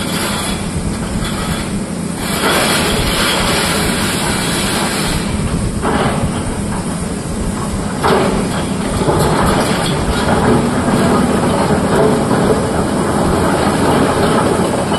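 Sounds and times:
steel bucket scraping stone: 0.0s - 5.4s
excavator diesel engines running: 0.0s - 14.9s.

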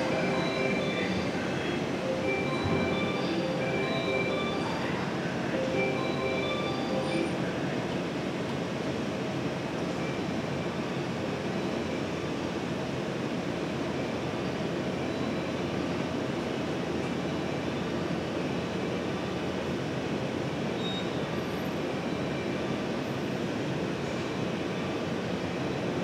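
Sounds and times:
electric train running: 0.0s - 7.8s.

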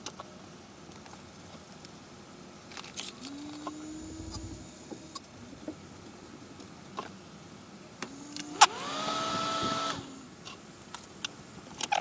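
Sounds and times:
low rising tone: 3.4s - 5.8s
low rumble: 3.8s - 6.2s.

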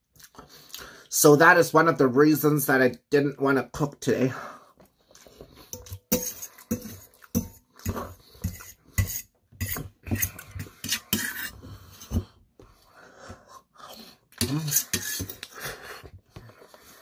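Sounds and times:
fork clinking on metal plate: 5.7s - 11.5s.

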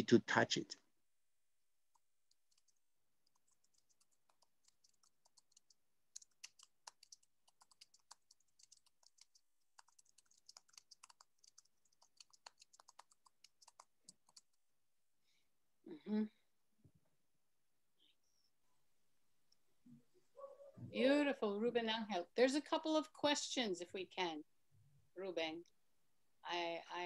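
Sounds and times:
typing on computer keyboard: 2.3s - 14.5s.

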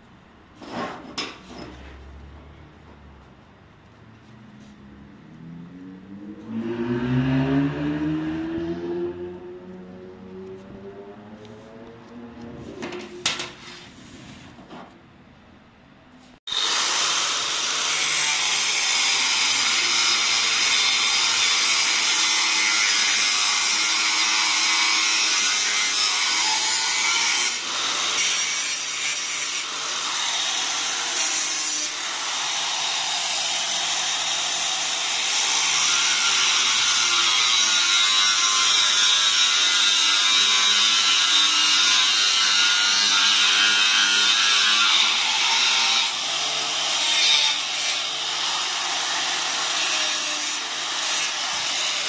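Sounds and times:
drill bit sharpener grinding: 16.5s - 34.4s.

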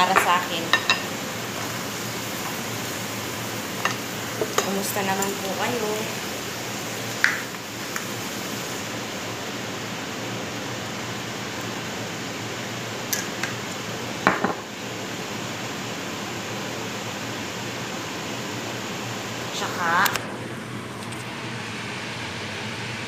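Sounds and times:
kitchen exhaust fan whooshing: 0.0s - 23.0s.

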